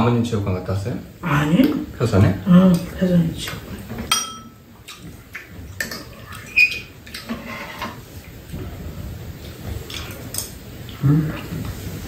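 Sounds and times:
soft eating noises: 1.2s - 12.0s
spoons clinking against bowls: 4.1s - 4.6s.

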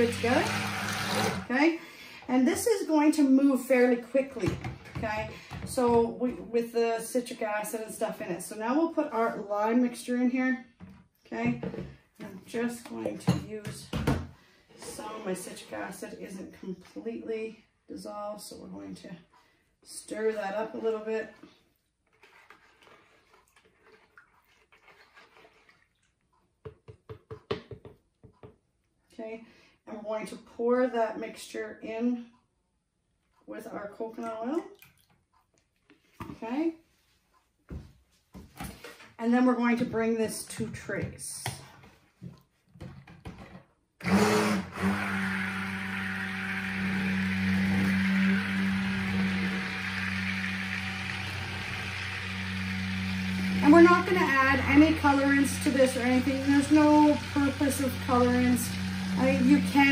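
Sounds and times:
immersion blender motor humming: 0.0s - 1.5s, 44.0s - 59.9s
spatula swishing and scraping: 20.8s - 26.1s
spatula tapping plastic pitcher: 26.6s - 28.6s.

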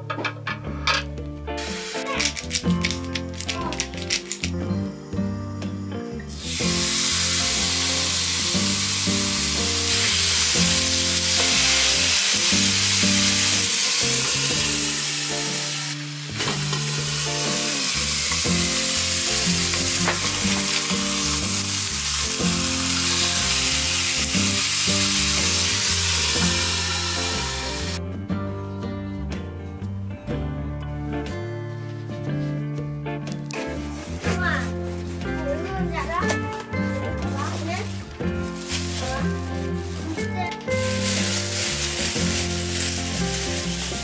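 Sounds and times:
light background music: 0.0s - 44.0s
steaks sizzling in frying pan: 1.6s - 4.5s, 6.3s - 28.0s, 40.7s - 44.0s.

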